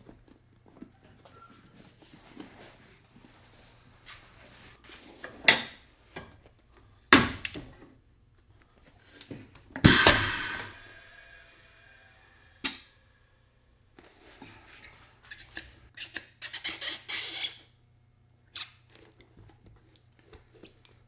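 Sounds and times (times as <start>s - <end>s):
loud ringing metal clank: 9.9s - 11.2s.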